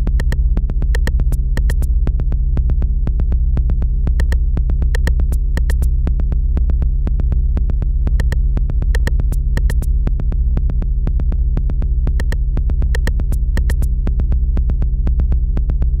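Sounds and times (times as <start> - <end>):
low synthesizer drone: 0.0 - 16.0
sharp electronic clicks: 0.2 - 0.4, 1.0 - 1.9, 4.2 - 4.4, 5.0 - 5.9, 8.2 - 8.4, 9.0 - 9.9, 12.2 - 13.9.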